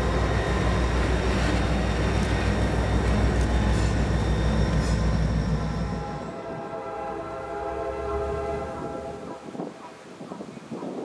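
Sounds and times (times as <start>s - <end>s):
diesel locomotive engine rumble: 0.0s - 9.7s
distant train air horn: 3.0s - 9.6s.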